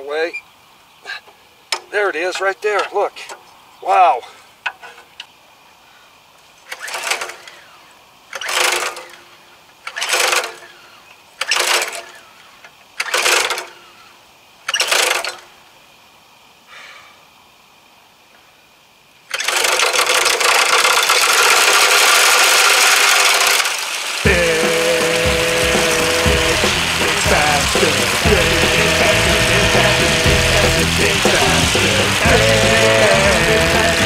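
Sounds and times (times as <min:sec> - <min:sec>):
recoil starter pulls: 0:06.6 - 0:14.0, 0:14.7 - 0:15.6, 0:19.2 - 0:34.0
string trimmer engine running: 0:06.7 - 0:12.4, 0:13.0 - 0:14.0, 0:14.7 - 0:15.4, 0:19.3 - 0:34.0.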